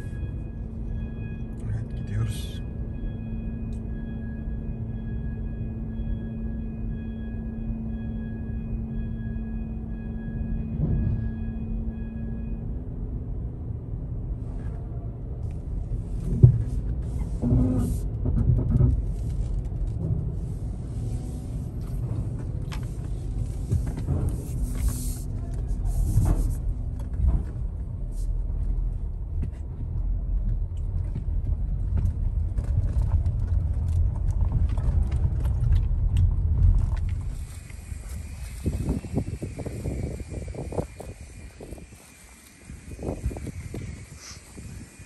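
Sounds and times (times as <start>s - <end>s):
car engine and tyres rumbling: 0.0s - 45.0s.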